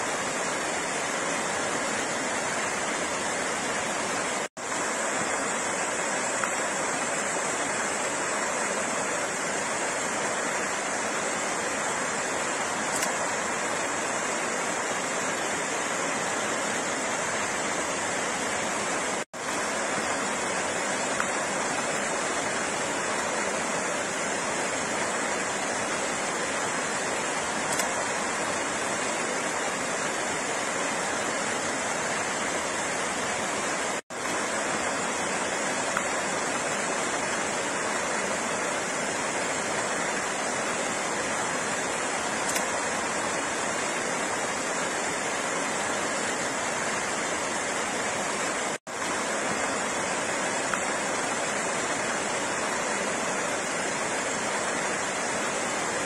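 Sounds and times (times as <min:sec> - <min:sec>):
water rushing: 0:00.0 - 0:56.0.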